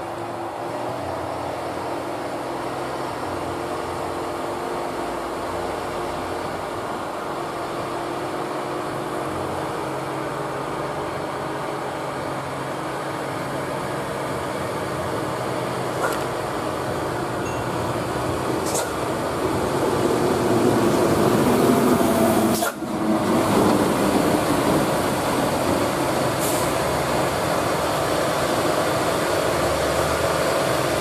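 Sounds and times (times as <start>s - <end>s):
diesel truck engine running: 0.0s - 31.0s.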